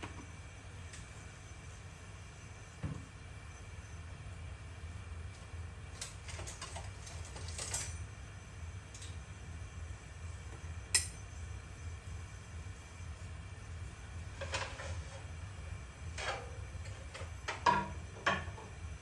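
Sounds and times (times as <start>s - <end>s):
low steady hum: 0.0s - 19.0s
sharp click: 10.9s - 11.2s.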